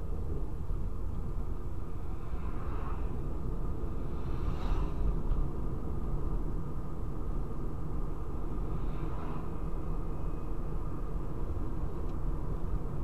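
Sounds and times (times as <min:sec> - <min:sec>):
passing vehicle whooshes: 0:01.8 - 0:06.7.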